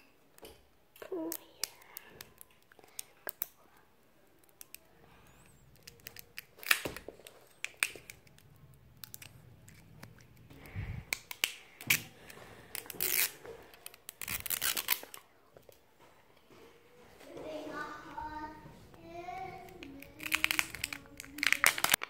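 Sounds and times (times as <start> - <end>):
plastic wrapping crinkling: 5.4 - 15.3, 19.7 - 22.0
paper wrapping tearing: 12.8 - 15.2, 20.0 - 22.0.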